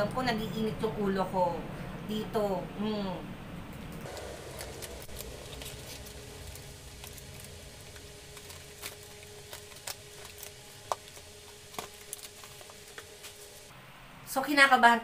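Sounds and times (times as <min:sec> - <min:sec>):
faint steady hum: 0:00.0 - 0:15.0
parcel and plastic wrap crinkling: 0:04.0 - 0:13.7.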